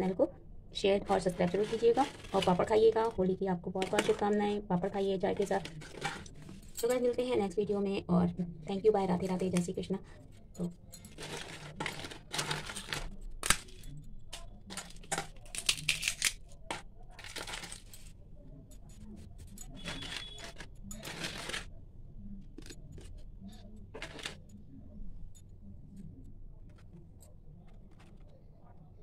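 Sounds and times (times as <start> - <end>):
papads crackling and rustling: 1.0 - 6.9, 11.1 - 13.8, 14.4 - 18.1, 19.8 - 21.7, 24.0 - 24.4.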